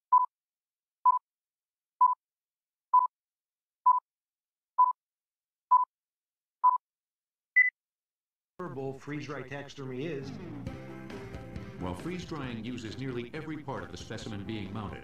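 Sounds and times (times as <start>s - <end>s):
timer beeps: 0.1s - 0.3s, 2.0s - 2.2s, 6.6s - 6.8s.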